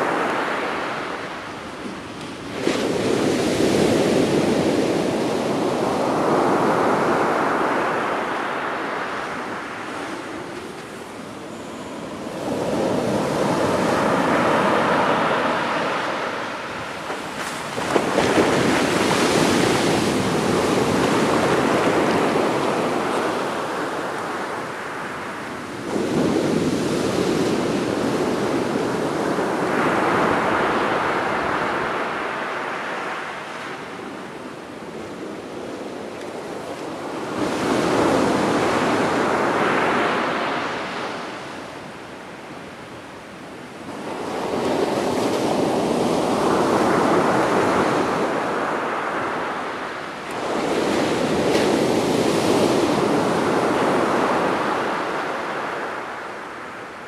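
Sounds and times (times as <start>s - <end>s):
surf breaking on beach: 0.0s - 33.8s, 43.9s - 56.6s.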